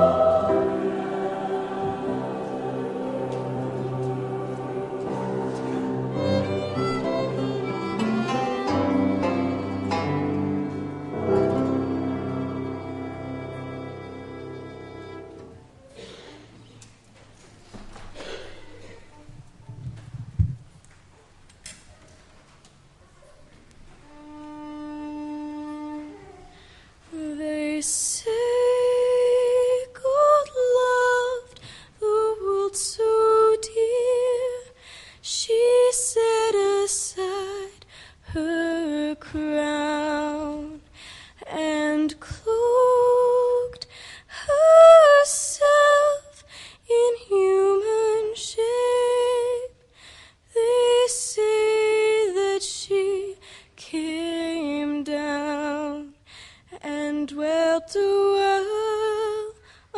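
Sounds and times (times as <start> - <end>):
women singing unaccompanied: 0.0 - 6.8.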